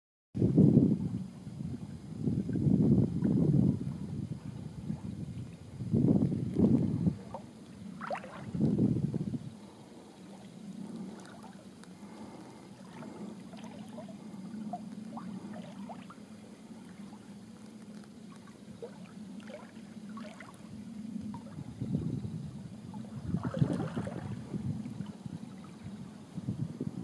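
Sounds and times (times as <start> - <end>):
water lapping against hull: 0.6 - 27.0
small splashes and drips: 6.2 - 8.8, 10.1 - 21.6, 22.9 - 25.8.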